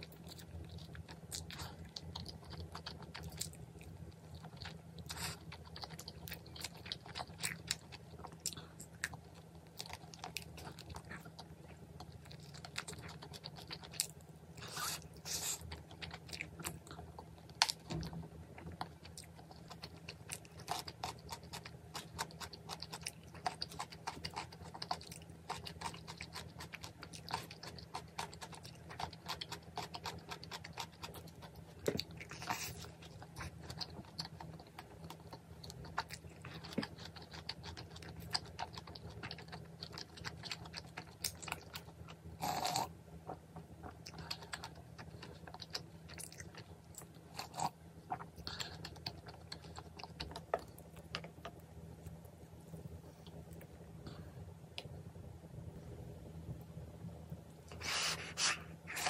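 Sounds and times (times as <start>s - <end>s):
person chewing crunchy food: 0.0s - 54.3s.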